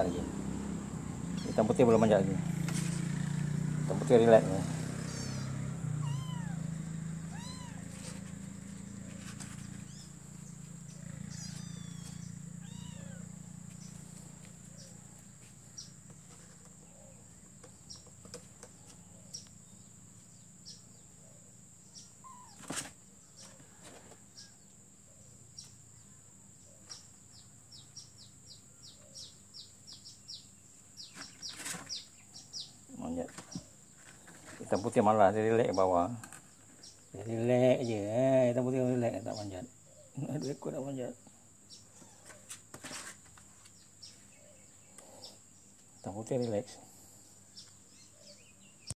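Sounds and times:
kittens mewing: 0.0s - 2.0s, 4.7s - 9.1s, 9.8s - 13.7s, 22.1s - 22.8s
low motor hum: 0.0s - 16.2s
kittens scratching in cardboard box: 2.6s - 3.1s, 7.1s - 13.0s, 13.6s - 16.8s, 22.4s - 24.4s, 31.1s - 32.1s, 41.9s - 43.8s.

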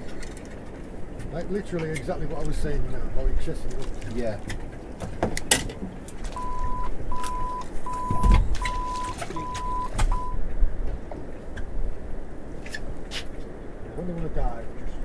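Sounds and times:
electronic beeper beeping: 6.4s - 10.4s.

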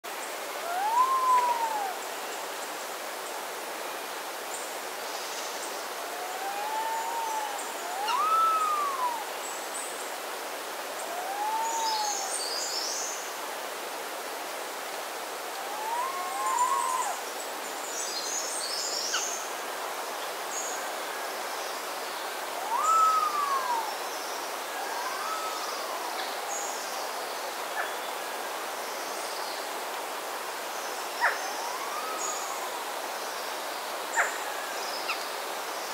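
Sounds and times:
forest hiss: 0.0s - 35.9s
bird whistled calls: 0.6s - 2.0s, 6.2s - 9.3s, 11.1s - 12.3s, 15.7s - 17.2s, 22.6s - 24.0s, 24.7s - 26.2s
small birds twittering: 5.1s - 10.0s, 11.0s - 13.2s, 15.6s - 19.5s, 21.6s - 28.1s.

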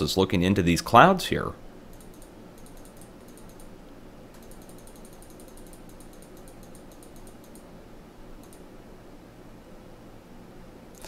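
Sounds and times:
low steady hum: 0.0s - 11.0s
computer mouse clicks: 1.9s - 3.7s, 4.3s - 7.7s, 8.4s - 8.6s.

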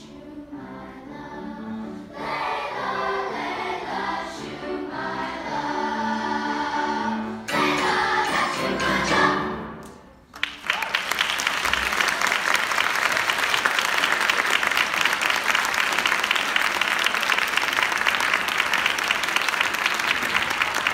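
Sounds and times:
choir singing: 0.0s - 10.1s
audience applause: 10.3s - 20.9s.

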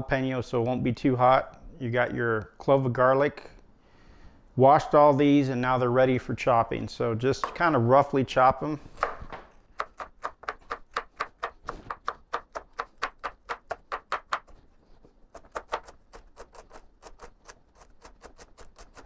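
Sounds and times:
knife chopping on wooden board: 9.0s - 14.5s, 15.4s - 16.5s.

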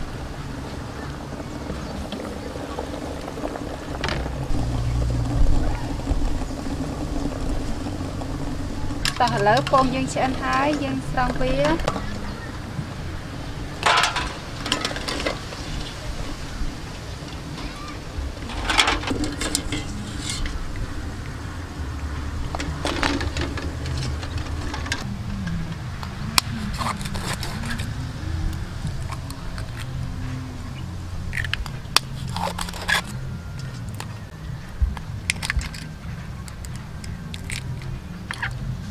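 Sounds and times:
low steady rumble: 0.0s - 38.9s
eggshell cracking clicks: 35.0s - 38.6s.

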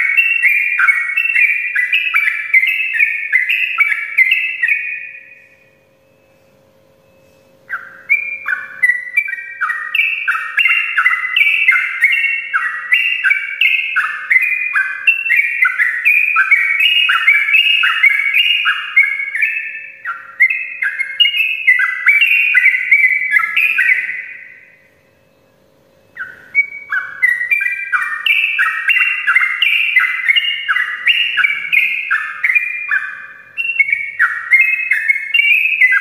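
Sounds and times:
bird song whistled chatter: 0.0s - 36.0s.

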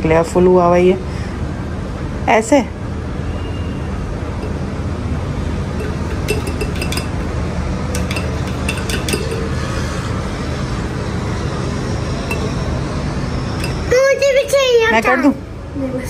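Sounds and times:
glassware and utensils clinking: 4.4s - 4.8s, 5.7s - 10.0s, 12.2s - 12.8s, 13.5s - 13.9s.

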